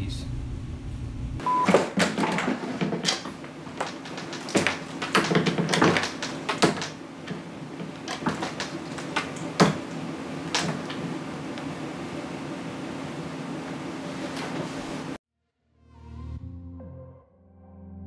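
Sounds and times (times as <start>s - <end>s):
low room hum: 0.0s - 15.2s
objects being handled: 1.5s - 11.8s.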